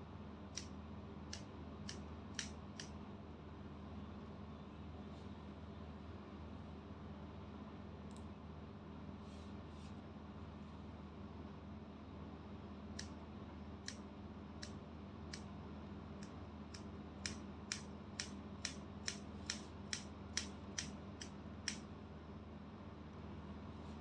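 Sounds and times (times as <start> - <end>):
scissors snipping hair: 1.3 - 2.9, 16.2 - 21.8.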